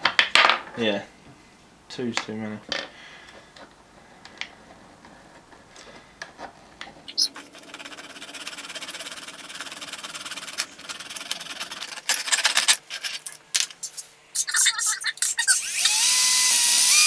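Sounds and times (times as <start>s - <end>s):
hand file rasping on wood: 7.4s - 12.0s.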